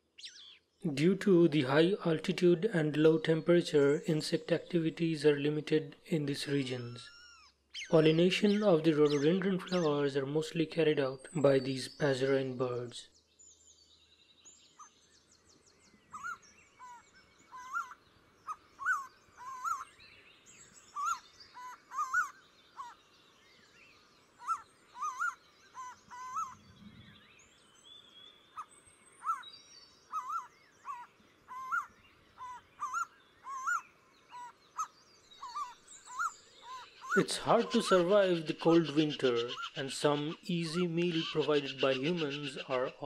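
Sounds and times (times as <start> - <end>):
faint bird chirps and twitters: 0.0 - 43.0
bird whistling: 16.2 - 19.9, 20.8 - 23.0, 24.4 - 27.5, 28.6 - 29.4, 30.1 - 40.5.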